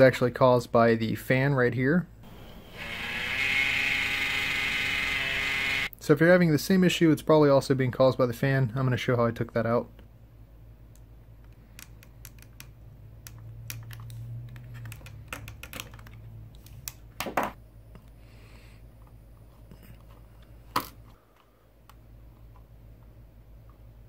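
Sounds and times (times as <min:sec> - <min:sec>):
plastic parts clicking: 0:11.5 - 0:17.0.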